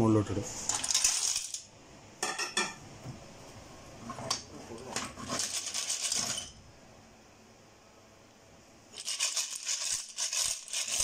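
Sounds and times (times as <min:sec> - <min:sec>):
clams rattling in a steel pot: 0:00.7 - 0:01.7, 0:05.3 - 0:06.5, 0:09.0 - 0:11.0.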